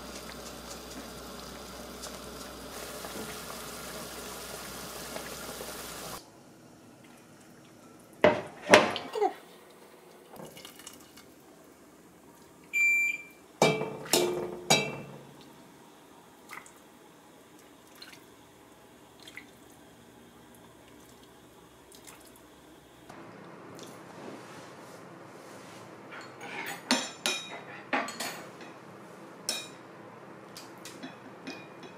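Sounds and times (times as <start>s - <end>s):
broth dripping and splashing: 10.1s - 11.5s, 17.5s - 18.4s, 19.1s - 19.9s, 20.5s - 22.5s
ladle clanking on metal pot: 13.6s - 15.2s.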